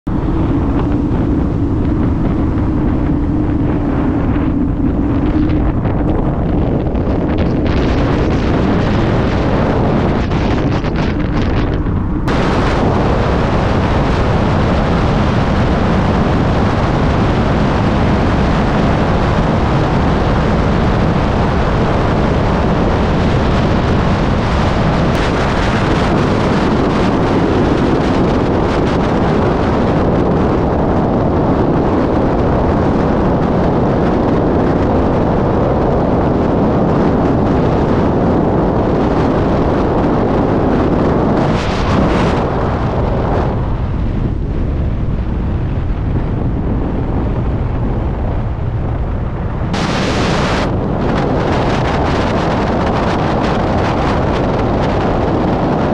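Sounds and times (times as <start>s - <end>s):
road and tyre noise: 0.0s - 55.9s
wind buffeting microphone: 0.0s - 55.9s.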